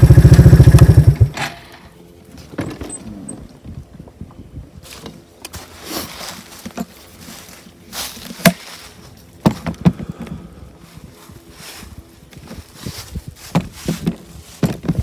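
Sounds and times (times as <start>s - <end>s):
footsteps through dry leaves: 4.8s - 9.4s, 10.1s - 15.0s.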